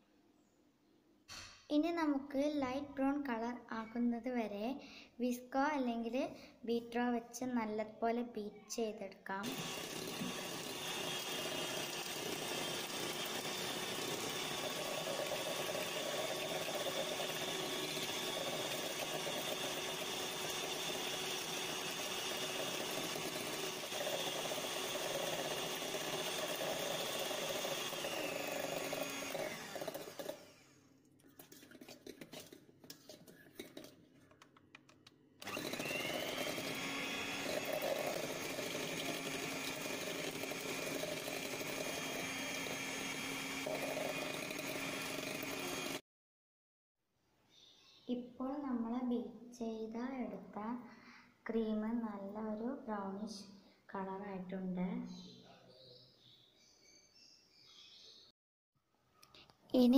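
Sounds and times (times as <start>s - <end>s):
electric hand mixer whirring: 9.4s - 30.8s, 35.4s - 46.0s.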